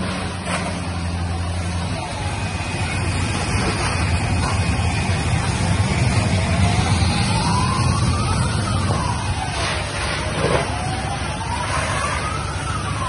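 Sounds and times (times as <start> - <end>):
engine and pump running: 0.0 - 13.0
siren: 0.0 - 13.0.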